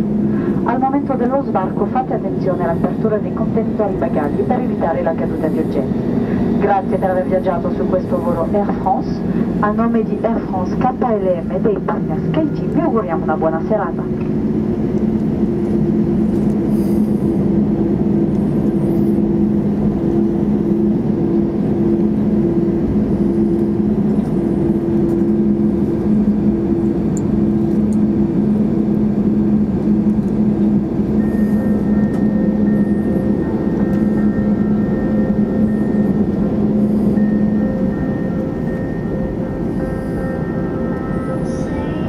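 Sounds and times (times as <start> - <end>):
aircraft cabin engine rush: 0.0 - 42.0
low hum tones: 0.0 - 42.0
faint higher tone: 31.2 - 42.0.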